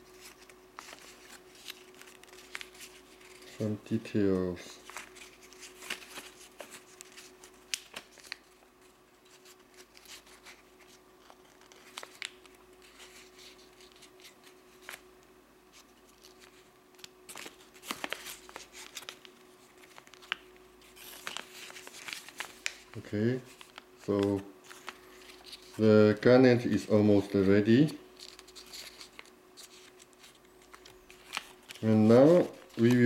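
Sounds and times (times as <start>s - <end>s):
faint steady hum: 0.0s - 33.0s
paper rustling and crinkling: 0.1s - 15.1s, 15.7s - 33.0s.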